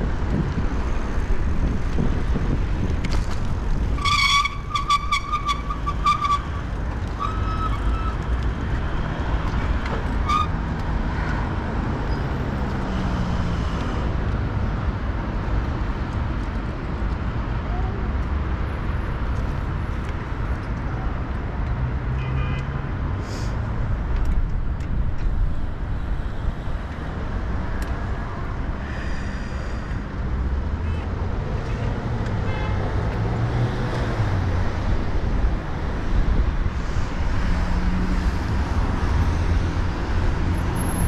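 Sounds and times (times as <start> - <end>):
wind rumble: 0.0 - 11.9
road traffic noise: 0.0 - 41.0.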